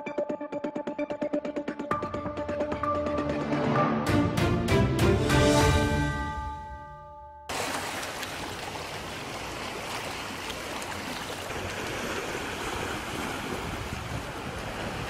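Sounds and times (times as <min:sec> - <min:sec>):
waves washing over stony shore: 0:07.5 - 0:15.0.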